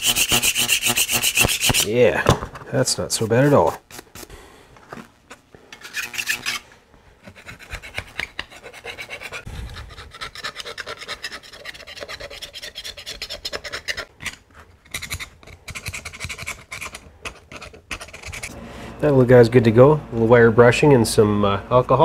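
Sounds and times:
wire brush scraping paint: 5.8s - 6.7s.

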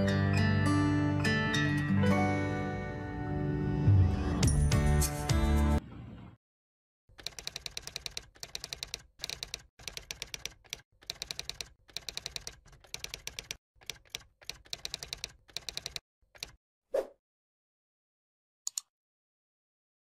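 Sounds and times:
rapid key clicks: 7.1s - 16.6s.

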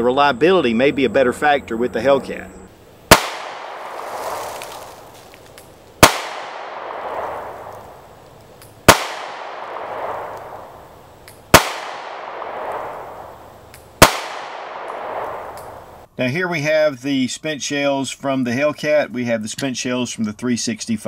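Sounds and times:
pistol shots with echo: 3.1s - 4.3s, 6.0s - 8.0s, 8.8s - 10.9s, 11.5s - 15.9s.

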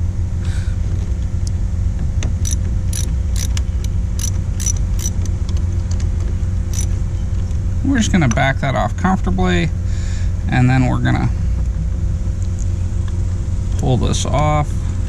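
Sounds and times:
steady low rumble: 0.0s - 15.0s
wrench metallic clicks: 2.4s - 5.3s, 6.7s - 6.9s.

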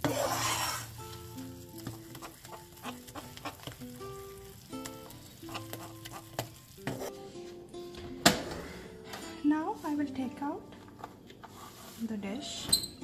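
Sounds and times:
spoon stirring toffee in pan: 0.0s - 7.2s
light background music: 0.1s - 13.0s.

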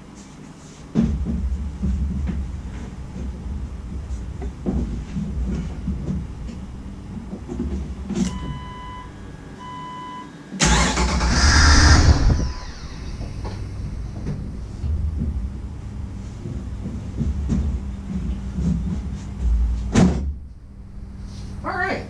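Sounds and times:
car engine cranking and starting: 10.6s - 15.9s
car engine idling: 10.6s - 19.0s, 20.3s - 22.0s.

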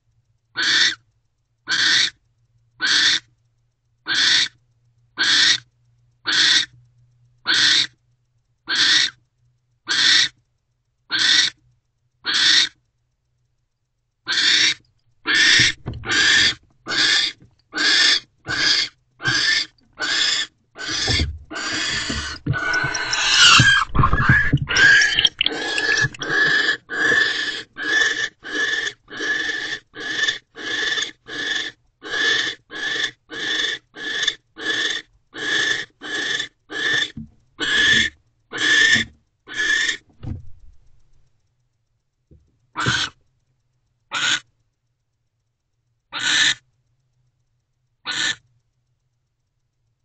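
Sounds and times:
barn owl rasping hiss calls: 0.6s - 1.0s, 1.7s - 2.2s, 2.8s - 3.3s, 4.1s - 4.6s, 5.2s - 5.7s, 6.3s - 6.7s, 7.5s - 7.9s, 8.7s - 9.2s, 9.8s - 10.4s, 11.1s - 11.6s, 12.2s - 12.8s, 14.3s - 40.0s, 42.8s - 43.2s, 44.1s - 44.5s, 46.1s - 46.6s, 48.0s - 48.4s.

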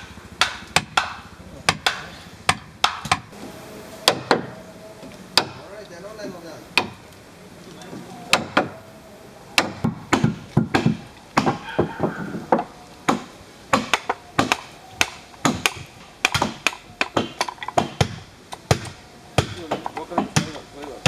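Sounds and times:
mallet striking wood chisel: 0.4s - 3.3s.

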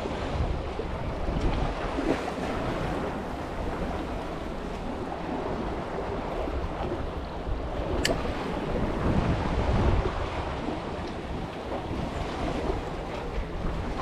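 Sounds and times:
sea waves: 0.0s - 14.0s
wind buffeting the microphone: 0.0s - 14.0s
sharp click: 8.0s - 8.2s.

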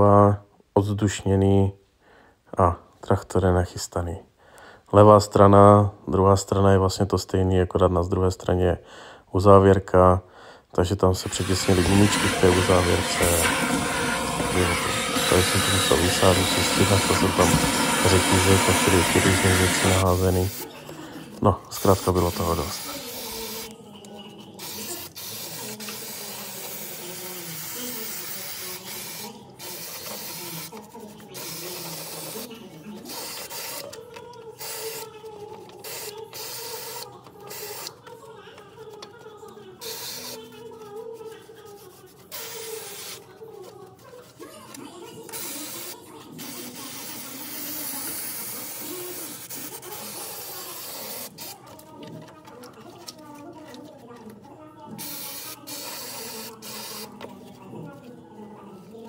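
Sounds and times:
pressurised jet hissing: 11.3s - 20.6s.

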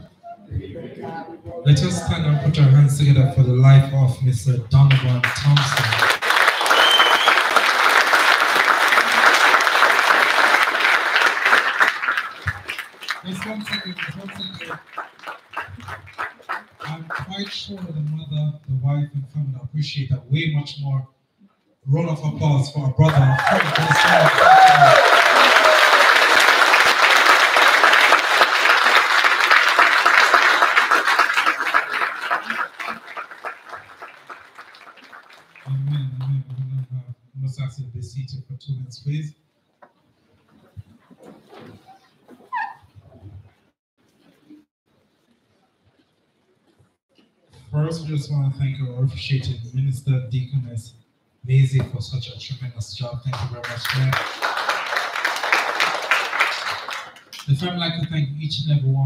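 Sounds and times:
crowd applauding: 4.8s - 18.2s, 23.0s - 36.6s, 53.3s - 57.8s.

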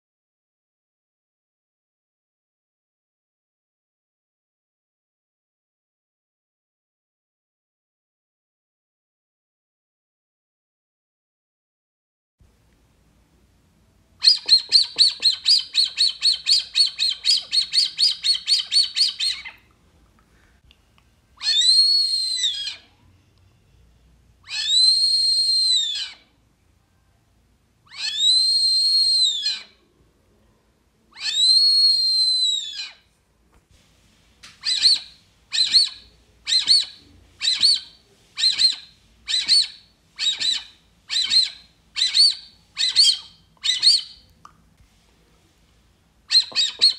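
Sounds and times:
duck call whistles: 46.3s - 46.9s.

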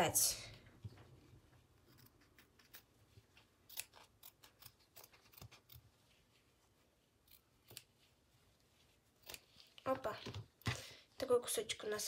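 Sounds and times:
scissors snipping cloth: 1.8s - 5.9s, 7.2s - 8.0s, 9.1s - 10.0s.

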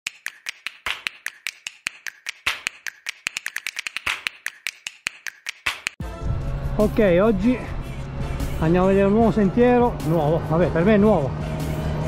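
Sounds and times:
quick sharp clicks: 0.1s - 6.0s.

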